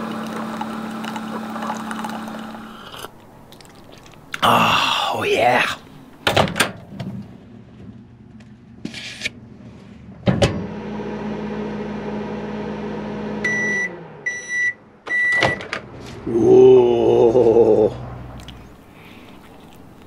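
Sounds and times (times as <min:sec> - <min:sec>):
microwave oven humming: 0:00.0 - 0:03.0, 0:10.4 - 0:15.5
man humming: 0:04.4 - 0:06.0, 0:16.2 - 0:18.2
microwave beeps: 0:13.4 - 0:15.7.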